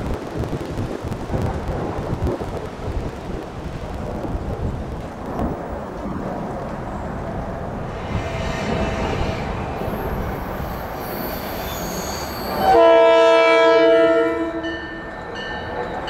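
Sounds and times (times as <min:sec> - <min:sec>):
wind buffeting microphone: 0:00.0 - 0:11.7
distant train approaching: 0:00.1 - 0:16.0
faint wheel squeal: 0:08.1 - 0:12.7.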